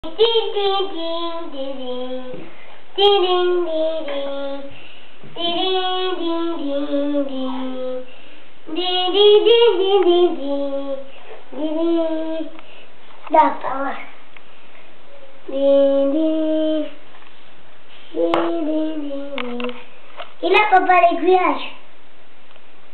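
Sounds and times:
child singing: 0.0 - 4.7, 5.3 - 8.1, 8.7 - 12.6, 15.4 - 17.0, 18.1 - 19.8.

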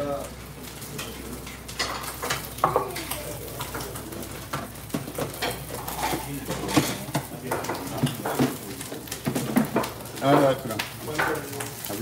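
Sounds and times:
ladle and bowls knocking and clinking: 4.5 - 11.8.

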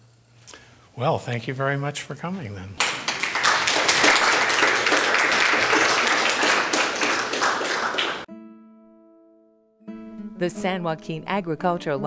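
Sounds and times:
audience applauding: 2.8 - 8.3.

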